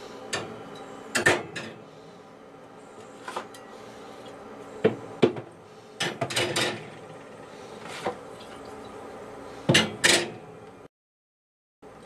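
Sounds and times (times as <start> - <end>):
glass bottles clinking on wire racks: 6.0 - 7.0.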